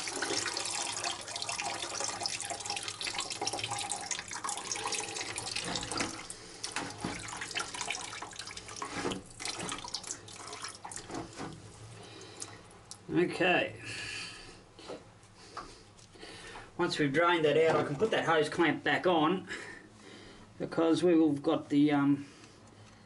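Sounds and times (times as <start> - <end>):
coolant pouring into a bucket: 0.0 - 13.0
liquid dripping: 0.0 - 13.1.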